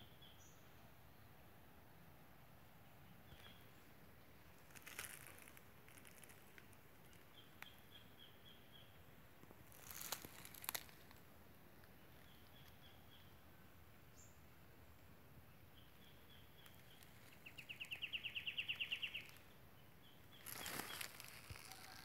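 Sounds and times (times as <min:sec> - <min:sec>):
leaves rustling: 0:03.3 - 0:07.7, 0:09.4 - 0:12.8, 0:16.6 - 0:19.6, 0:20.3 - 0:22.0.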